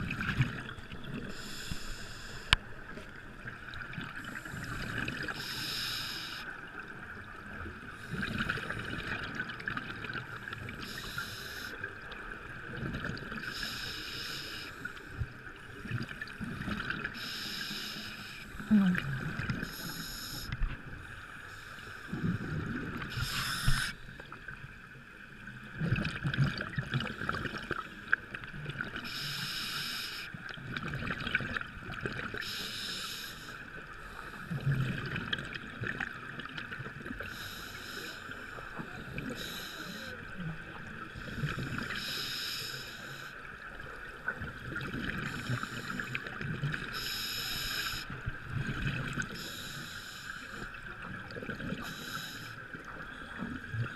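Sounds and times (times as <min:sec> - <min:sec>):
regulator hissing inhale: 0:01.3 - 0:02.6, 0:04.2 - 0:06.5, 0:10.8 - 0:11.8, 0:13.4 - 0:15.2, 0:17.1 - 0:18.7, 0:19.6 - 0:22.1, 0:23.1 - 0:24.2, 0:29.0 - 0:30.4, 0:32.4 - 0:34.6, 0:37.2 - 0:40.2, 0:41.2 - 0:43.4, 0:45.2 - 0:46.2, 0:46.9 - 0:48.2, 0:49.3 - 0:50.7, 0:51.8 - 0:52.6.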